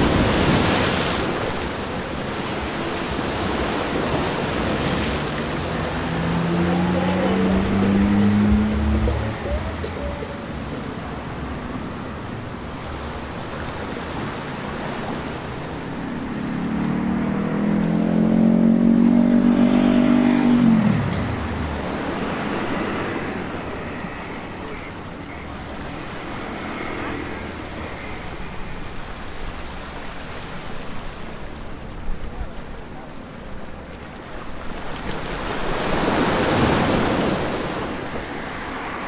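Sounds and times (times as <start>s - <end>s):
waves on rocks: 0.0s - 17.5s, 19.9s - 39.0s
vehicle passing by: 2.9s - 12.4s, 14.1s - 29.4s.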